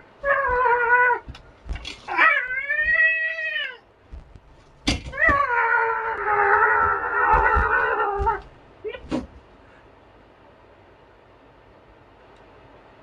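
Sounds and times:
cat-like wailing yowls: 0.2 - 1.3, 2.1 - 3.8, 5.1 - 8.5.

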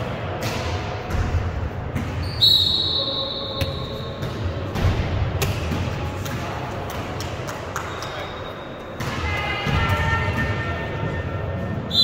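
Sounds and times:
referee's whistle: 2.2 - 4.2.

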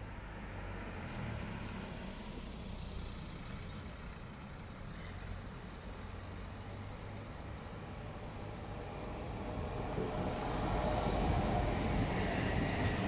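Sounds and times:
electric train rumble: 7.1 - 13.0.

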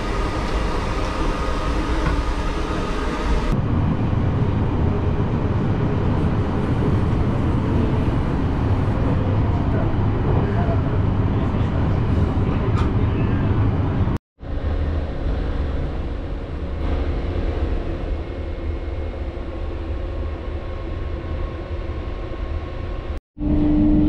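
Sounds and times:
train interior rumble and hum: 0.0 - 24.0.

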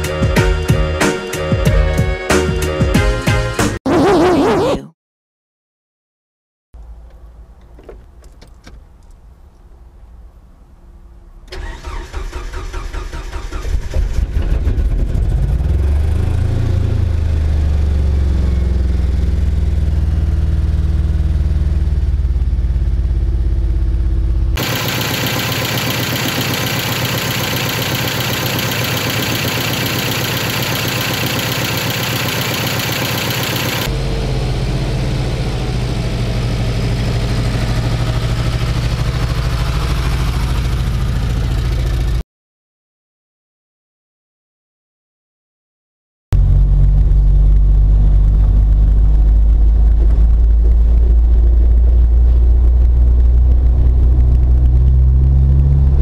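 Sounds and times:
engine cranking on starter: 11.5 - 15.6, 24.6 - 33.9
rough engine idle: 24.6 - 33.9.

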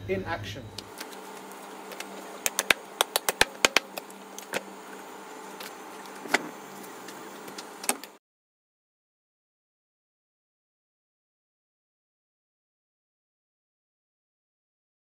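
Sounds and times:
steady hum: 0.0 - 8.2.

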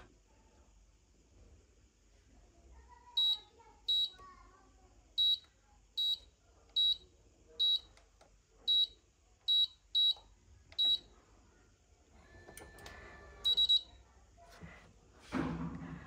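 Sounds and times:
keypad beeps: 3.2 - 4.1, 5.2 - 7.0, 7.6 - 7.9, 8.7 - 11.1, 12.4 - 13.9.

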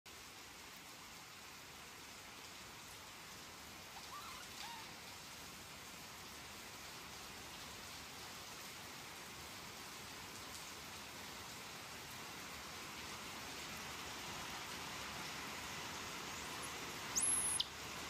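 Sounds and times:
steady rain on foliage: 0.0 - 18.0
faint chirp: 4.0 - 4.9, 17.2 - 17.7.

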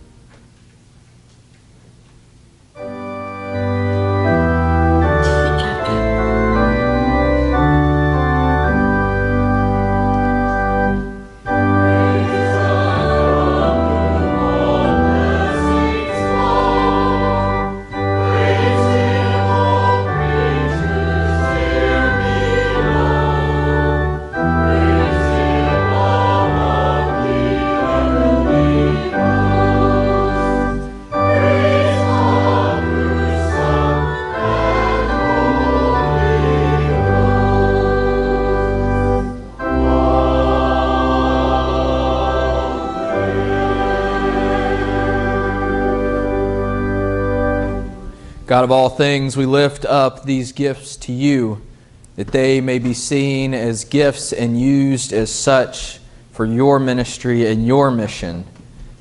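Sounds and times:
church organ chords: 2.7 - 58.4
choir singing: 3.6 - 9.8, 10.8 - 48.0.

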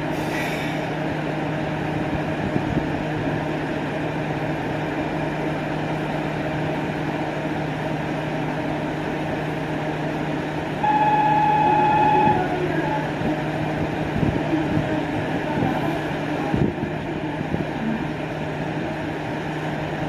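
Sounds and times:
diesel railcar idling hum: 0.0 - 20.0
loud high steady tone: 10.8 - 13.2.

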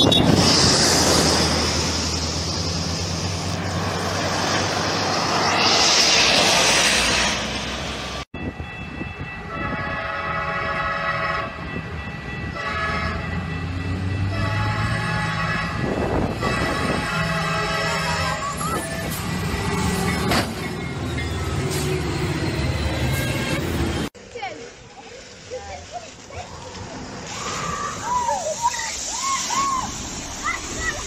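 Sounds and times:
truck passing with road noise: 0.0 - 8.3
train air horn: 9.4 - 11.7, 12.5 - 13.5, 14.2 - 18.5.

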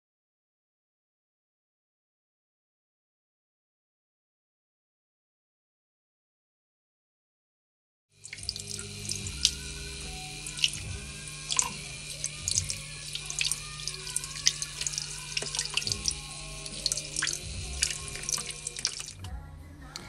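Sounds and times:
tap water splashing into tub: 8.2 - 19.3.

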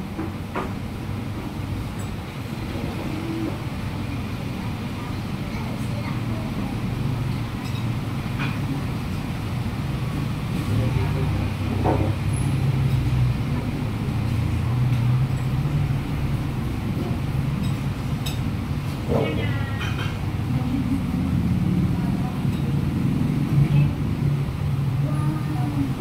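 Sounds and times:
street traffic rumble: 0.0 - 26.0
vehicle engine: 0.0 - 26.0
voices: 2.8 - 8.8, 19.0 - 26.0.

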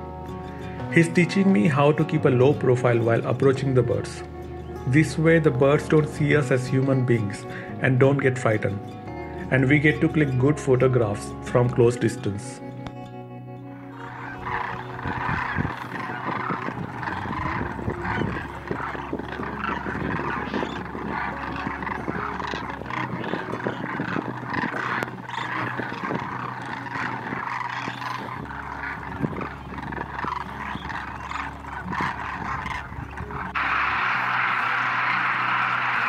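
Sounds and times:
flock of cranes calling: 0.0 - 12.4, 13.8 - 36.0
steady noise: 32.8 - 36.0.

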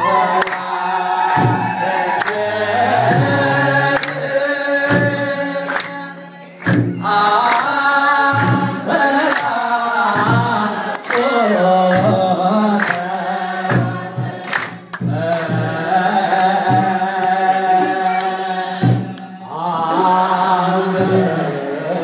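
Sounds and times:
congregation singing a hymn: 0.0 - 22.0
hand clapping: 0.3 - 19.3
low drum beat: 1.2 - 5.6.

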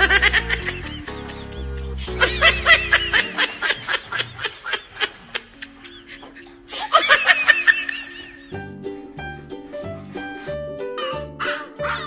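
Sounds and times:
high-pitched giggling laughter: 0.0 - 8.6
background music: 0.0 - 12.0.

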